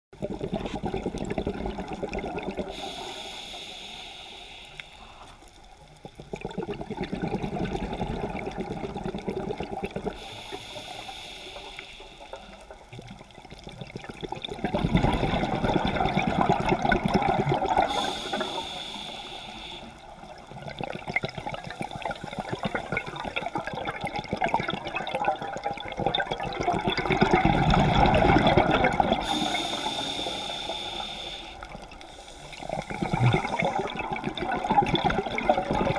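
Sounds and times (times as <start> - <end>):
rush of exhaled bubbles: 0.2 - 3.2, 6.0 - 10.6, 12.3 - 19.2, 20.0 - 35.9
diver inhaling through regulator: 2.6 - 5.5, 10.1 - 12.7, 17.7 - 20.2, 28.8 - 34.0.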